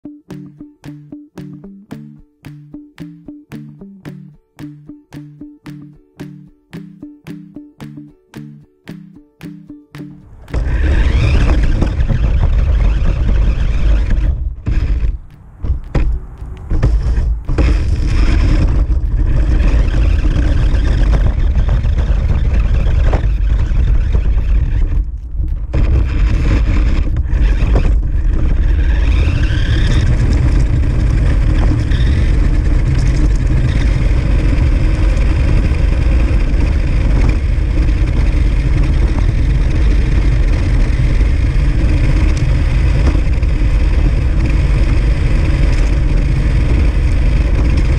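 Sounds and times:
tyres rumbling over concrete: 10.3 - 47.9
toy truck electric motor whining: 10.5 - 15.2, 25.8 - 47.9.

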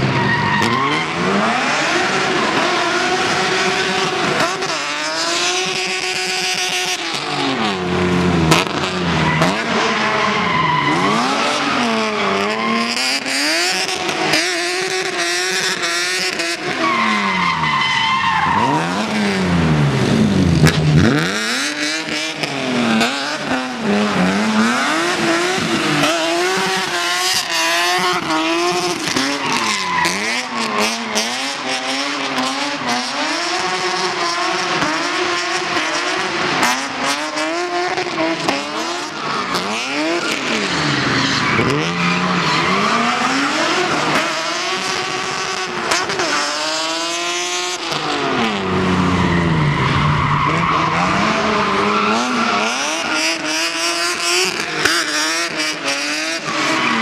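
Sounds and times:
tyres squealing on tarmac: 0.0 - 1.4, 9.2 - 14.2, 16.3 - 19.0, 24.2 - 34.8, 38.8 - 44.2, 49.1 - 57.0
car engine revving: 0.0 - 57.0.

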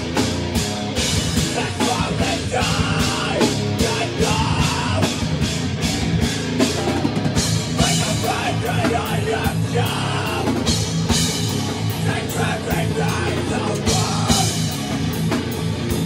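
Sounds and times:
drum kit: 0.0 - 16.0
electric guitar: 0.0 - 16.0
person singing: 1.4 - 5.2, 7.8 - 10.7, 11.9 - 14.7.

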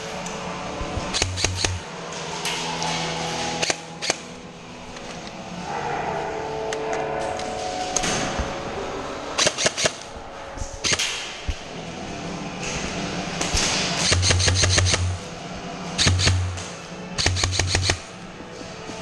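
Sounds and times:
low buzz: 0.0 - 19.0
airsoft guns firing: 13.4 - 15.2, 16.0 - 18.1.

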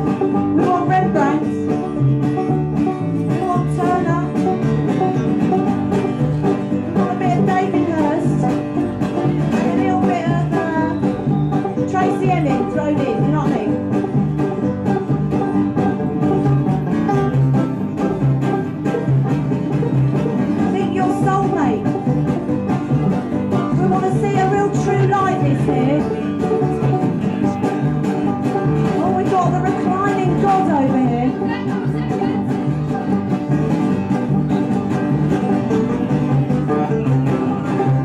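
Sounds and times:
banjo picking: 0.0 - 38.0
guitar: 0.0 - 38.0
upright bass line: 0.0 - 38.0
woman singing: 0.6 - 1.6, 3.3 - 4.4, 7.0 - 8.6, 9.5 - 11.1, 11.9 - 13.8, 20.7 - 21.9, 23.8 - 26.1, 29.0 - 32.4.

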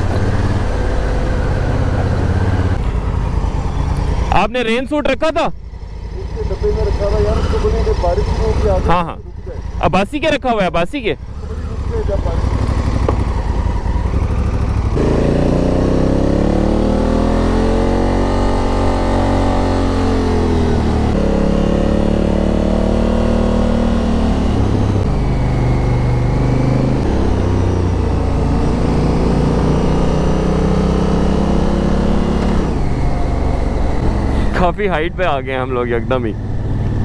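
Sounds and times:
motorcycle engine under load: 11.2 - 37.0.

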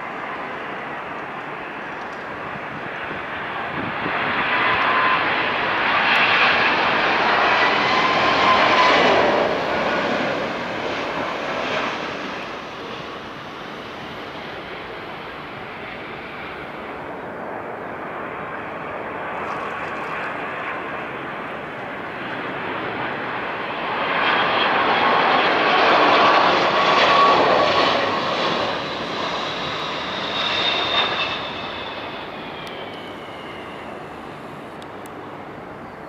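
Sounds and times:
jet airliner passing overhead: 0.0 - 36.0
whining fan tone dropping in pitch: 29.3 - 36.0.

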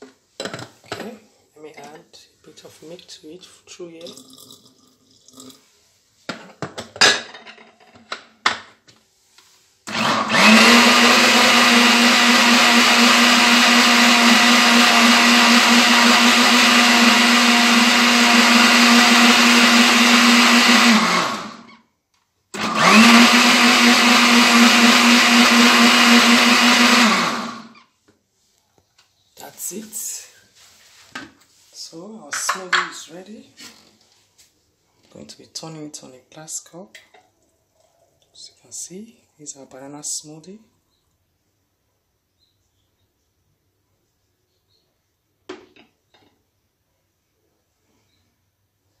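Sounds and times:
blender motor running: 9.9 - 21.8, 22.6 - 27.8.

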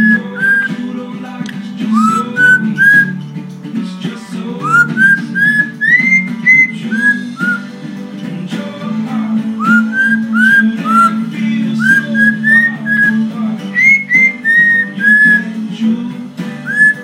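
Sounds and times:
parrot whistling: 0.0 - 0.8, 1.9 - 3.2, 4.6 - 7.7, 9.6 - 15.6, 16.6 - 17.0
guitar song: 0.0 - 17.0.

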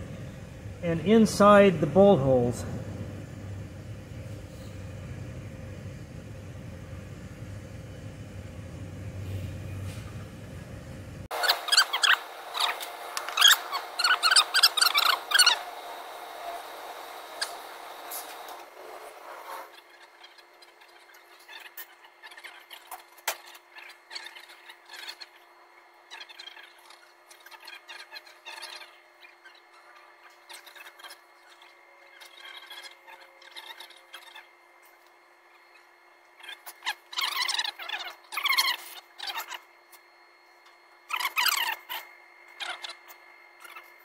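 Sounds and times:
faint rumble: 0.0 - 11.3
low machine hum: 0.0 - 44.0.

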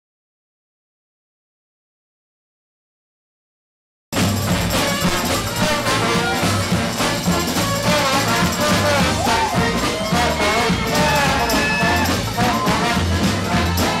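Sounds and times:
brass band playing: 4.2 - 14.0.

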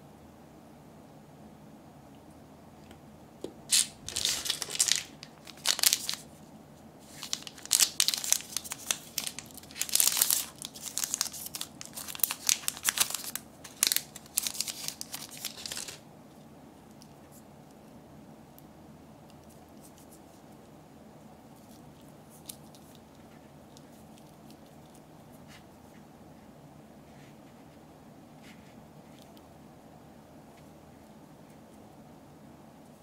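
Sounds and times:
plastic wrapper crinkling and tearing: 3.7 - 6.3, 7.0 - 16.0.

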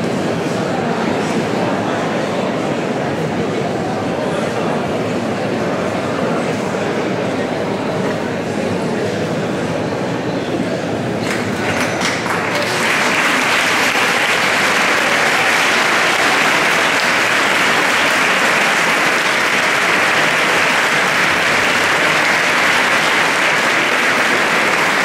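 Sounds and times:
crowd applauding: 11.2 - 25.0.

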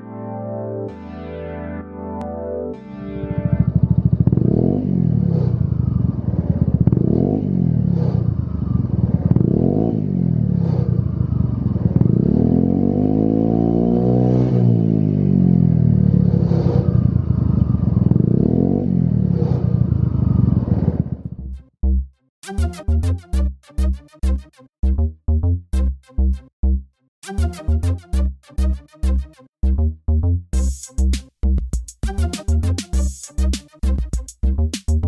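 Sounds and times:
scooter engine revving: 3.4 - 21.4.

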